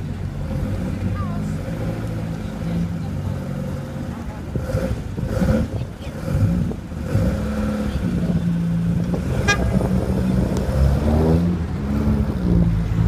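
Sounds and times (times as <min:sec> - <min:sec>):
car engine accelerating: 0:00.0 - 0:13.0
short car horn toot: 0:09.4 - 0:09.9.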